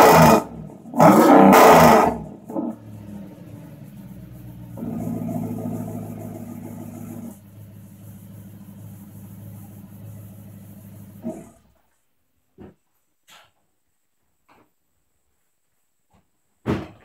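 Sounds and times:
car engine idling and revving: 0.0 - 11.8.

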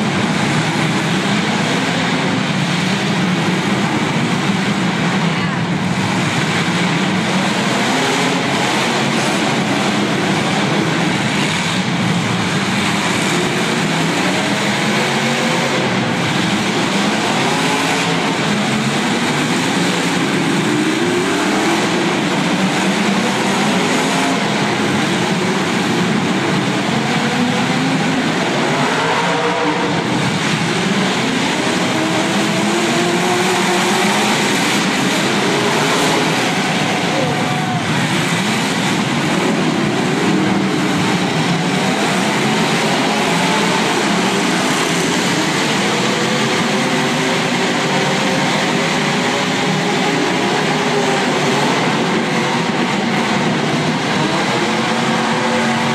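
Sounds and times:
car engines revving: 0.0 - 55.9.

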